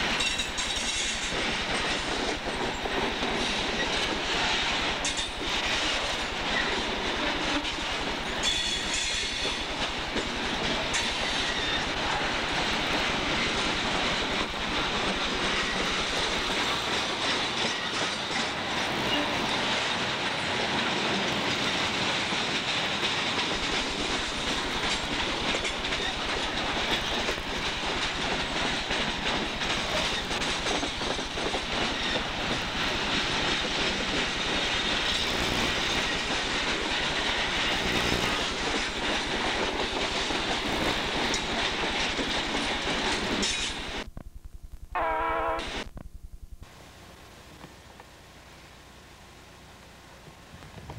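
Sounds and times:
wheels clicking over rail joints: 0:00.0 - 0:18.9, 0:19.5 - 0:43.8
steel wheels rumbling on rail: 0:00.0 - 0:44.1.

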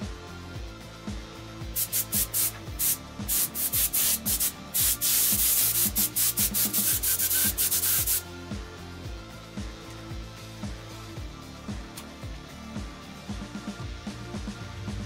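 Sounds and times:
background music with steady beat: 0:00.0 - 0:15.0
paint spray gun hissing: 0:01.8 - 0:08.2.

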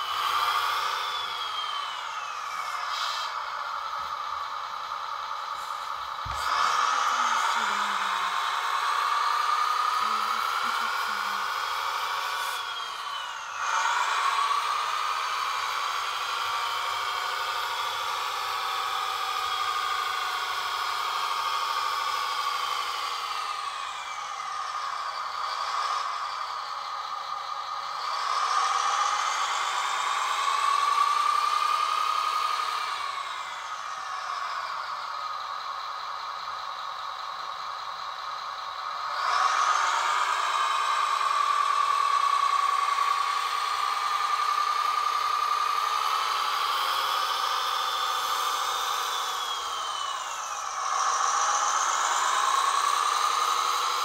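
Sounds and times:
model truck motor whine: 0:00.0 - 0:54.0.

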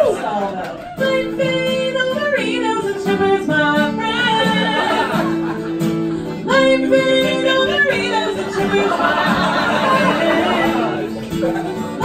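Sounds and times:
acoustic guitar chords: 0:00.7 - 0:12.0
woman singing: 0:00.9 - 0:05.3, 0:06.4 - 0:11.1.

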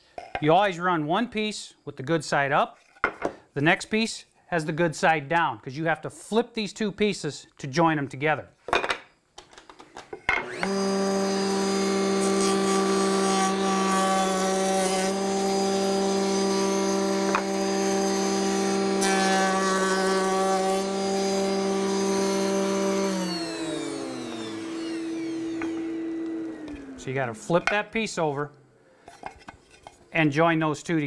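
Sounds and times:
router motor whining: 0:10.4 - 0:27.4
router bit cutting wood: 0:10.4 - 0:27.7.

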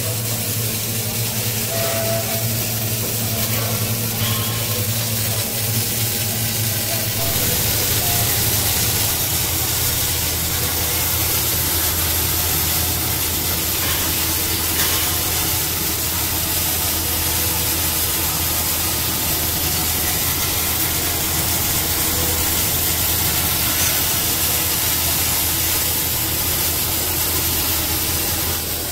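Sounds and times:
low machine hum: 0:00.0 - 0:28.9
welding arc hissing: 0:00.0 - 0:28.9.

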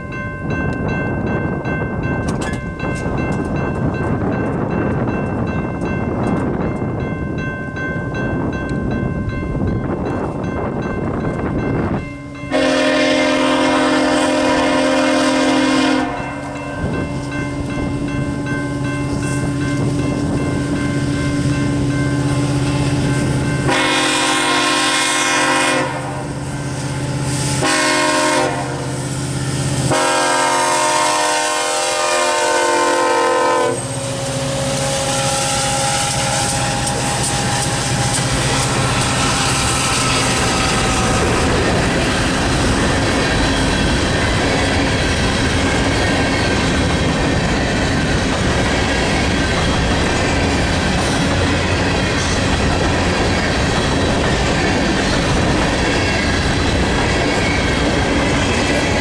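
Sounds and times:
hopper cars clattering on rails: 0:00.0 - 0:15.0, 0:33.8 - 0:59.0
diesel locomotives running by: 0:00.0 - 0:59.0
locomotive horn blasts: 0:12.5 - 0:16.6, 0:23.6 - 0:26.4, 0:27.4 - 0:29.1, 0:29.7 - 0:39.3.

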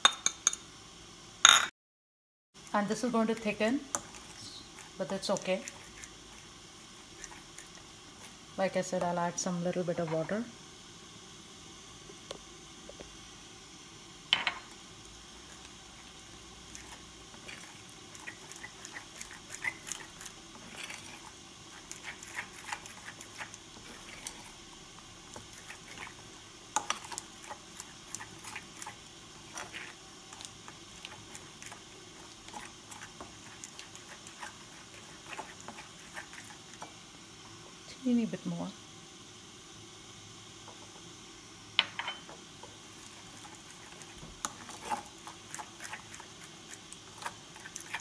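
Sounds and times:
spoon clinking and scraping bowl: 0:16.7 - 0:24.5, 0:26.8 - 0:36.9, 0:41.8 - 0:42.4, 0:43.3 - 0:48.0.

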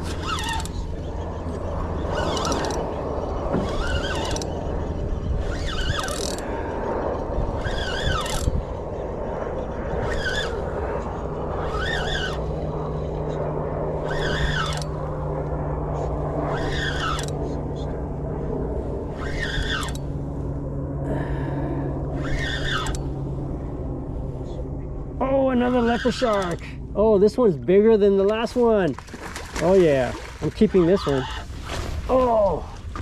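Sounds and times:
spinning reel cranking: 0:00.0 - 0:00.8, 0:02.1 - 0:03.0, 0:03.6 - 0:06.5, 0:07.5 - 0:08.7, 0:11.6 - 0:12.4, 0:14.0 - 0:15.0, 0:16.5 - 0:17.4, 0:19.2 - 0:20.0, 0:22.2 - 0:23.1, 0:26.0 - 0:26.7
fishing reel drag squealing: 0:00.0 - 0:13.4, 0:14.0 - 0:15.0, 0:16.4 - 0:17.6, 0:19.1 - 0:20.2, 0:22.2 - 0:23.2, 0:25.6 - 0:26.7, 0:30.6 - 0:31.7
steady low hum: 0:00.0 - 0:33.0.

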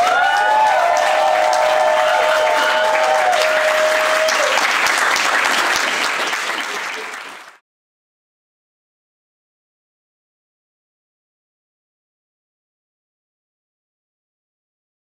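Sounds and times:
audience clapping: 0:00.0 - 0:07.6.

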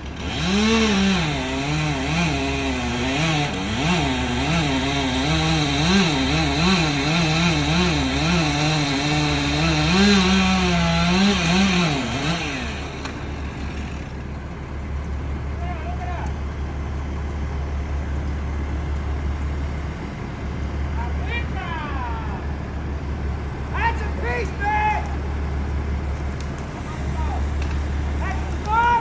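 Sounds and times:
chainsaw cutting through trunk: 0:00.0 - 0:14.3
low engine drone: 0:11.5 - 0:29.0.

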